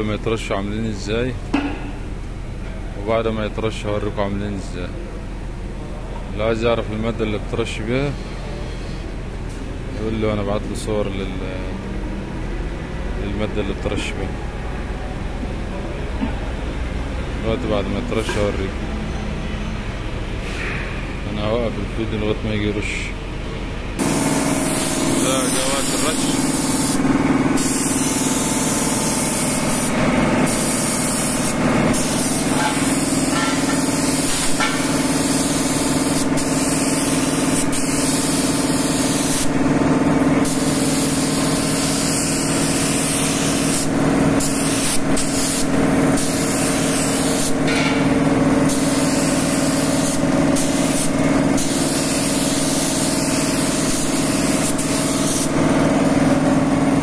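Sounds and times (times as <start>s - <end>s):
air compressor running: 0.0s - 57.0s
paint spray gun hissing: 24.0s - 39.7s, 40.4s - 47.9s, 48.6s - 55.8s.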